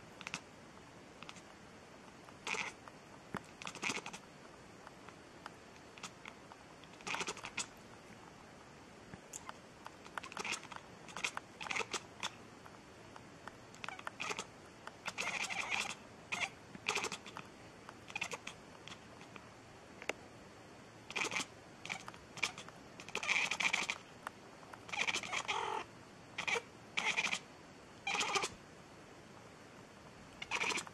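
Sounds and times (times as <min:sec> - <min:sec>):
cat meowing: 0:02.5 - 0:02.8, 0:10.2 - 0:12.3, 0:13.8 - 0:14.5, 0:15.1 - 0:17.3, 0:18.1 - 0:18.5, 0:24.9 - 0:27.4, 0:28.0 - 0:28.6, 0:30.4 - 0:30.9.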